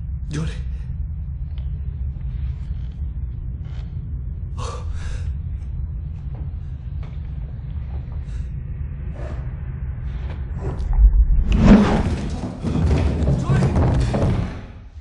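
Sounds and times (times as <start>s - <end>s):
deep low rumble: 0.0s - 15.0s.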